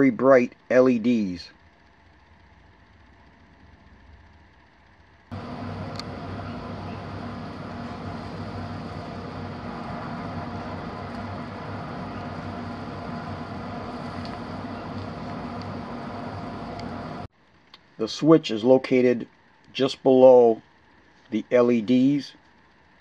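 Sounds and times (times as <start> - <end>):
machine hum with hiss: 1.5 - 17.3.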